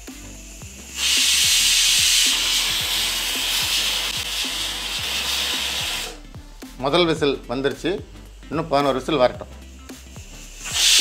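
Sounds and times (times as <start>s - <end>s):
pressure cooker whistling: 0.0s - 6.2s, 8.7s - 11.0s.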